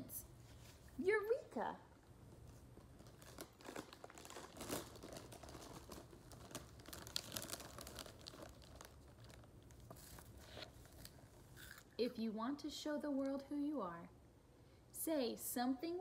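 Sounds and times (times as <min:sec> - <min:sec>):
plastic bag crinkling: 0:02.5 - 0:11.9.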